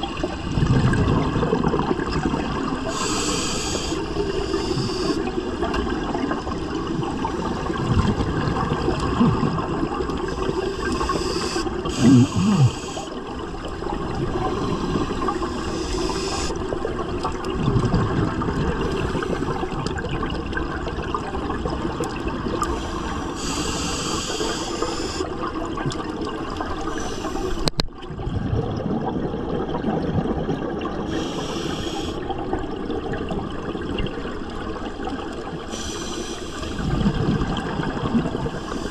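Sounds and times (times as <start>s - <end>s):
bubbling exhaled air: 0.1s - 38.9s
hissing regulator inhalations: 2.9s - 5.3s, 10.4s - 13.2s, 14.4s - 16.6s, 22.6s - 25.3s, 26.9s - 27.8s, 31.1s - 32.2s, 35.7s - 36.8s, 38.6s - 38.9s.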